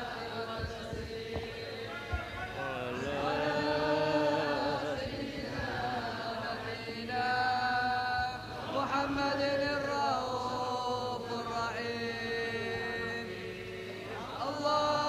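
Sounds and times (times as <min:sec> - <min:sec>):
group of voices chanting: 0:00.0 - 0:09.7.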